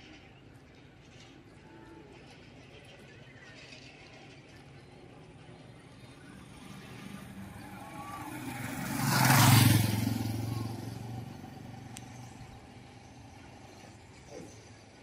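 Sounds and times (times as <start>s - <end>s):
vehicle engine passing by: 5.3s - 14.8s.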